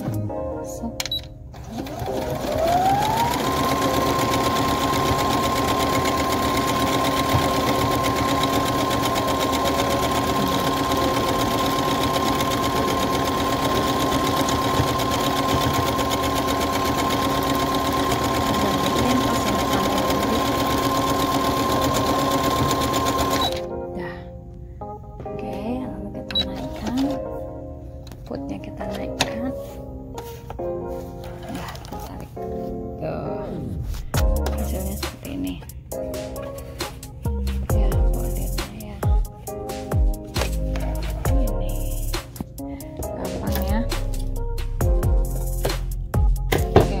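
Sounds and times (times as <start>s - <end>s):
sewing machine motor whine: 1.6s - 23.6s.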